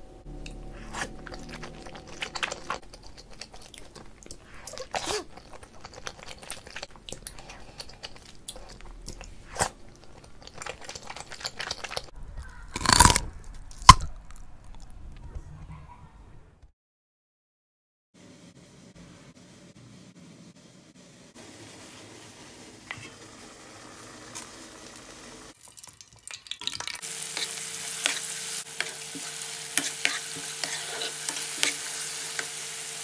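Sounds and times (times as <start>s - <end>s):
wet chewing mouth smacks: 1.3s - 12.1s.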